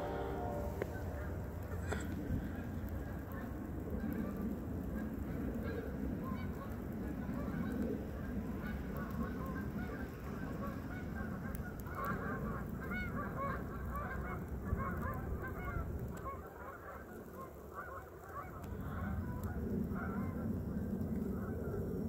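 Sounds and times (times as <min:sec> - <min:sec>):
flock of birds calling: 0:00.0 - 0:06.7
steady low rumble: 0:00.0 - 0:12.8, 0:18.6 - 0:22.0.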